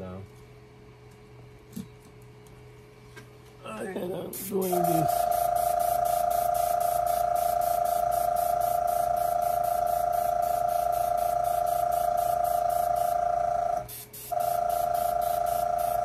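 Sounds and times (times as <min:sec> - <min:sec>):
compressor whining: 0:03.5 - 0:16.0
pulsing air hiss: 0:04.3 - 0:16.0.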